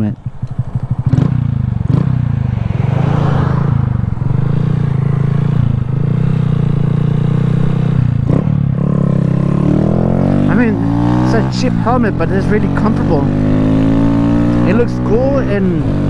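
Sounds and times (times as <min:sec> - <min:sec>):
wind noise: 0:00.0 - 0:08.5
motorcycle engine running: 0:00.0 - 0:16.0.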